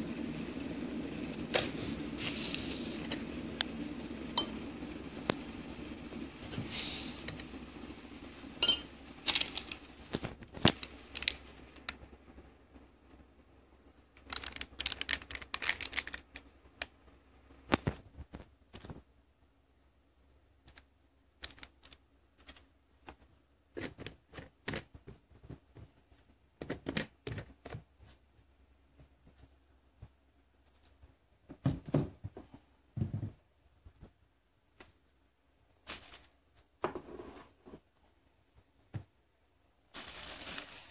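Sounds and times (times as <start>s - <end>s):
plastic sachet crinkling: 9.2s - 11.5s, 14.2s - 16.5s, 39.9s - 40.9s.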